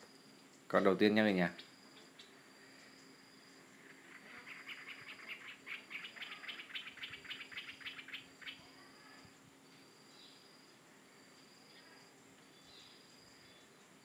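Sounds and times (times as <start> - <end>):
high insect drone: 0.0 - 14.0
animal chirping rapidly: 4.1 - 8.7.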